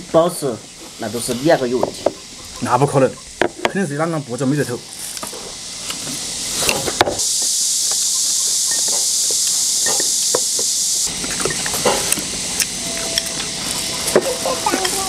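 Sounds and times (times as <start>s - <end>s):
loud steady high hiss: 0.0s - 15.0s.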